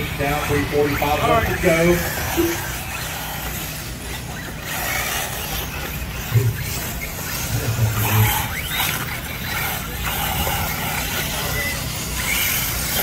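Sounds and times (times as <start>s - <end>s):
motor whine rising: 0.0s - 13.0s
radio-controlled trucks racing: 0.0s - 13.0s.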